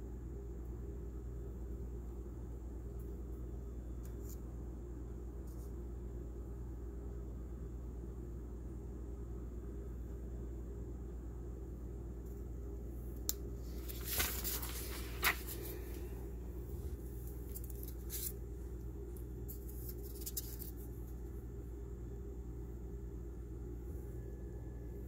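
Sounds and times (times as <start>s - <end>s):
steady low hum: 0.0s - 25.0s
paper rustling: 13.6s - 18.5s, 19.4s - 21.2s.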